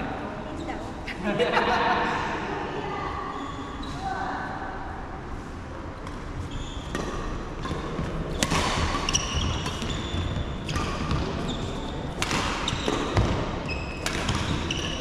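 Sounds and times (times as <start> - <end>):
shoes squeaking on wooden floor: 6.4 - 6.9, 8.3 - 15.0
rackets striking shuttlecock: 6.9 - 10.0, 12.1 - 13.4, 14.0 - 15.0.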